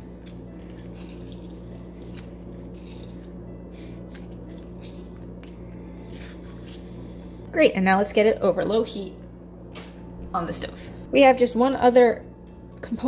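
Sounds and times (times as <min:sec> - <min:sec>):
juice dripping: 0:00.0 - 0:07.5
steady low hum: 0:00.0 - 0:13.0.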